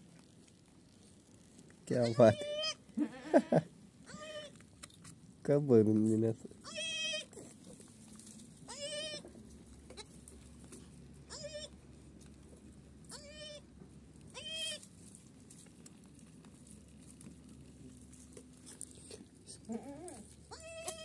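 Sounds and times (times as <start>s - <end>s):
goat bleating: 1.9s - 4.6s, 6.6s - 7.4s, 8.7s - 9.3s, 11.3s - 11.8s, 13.1s - 13.6s, 14.3s - 14.8s, 19.6s - 21.0s.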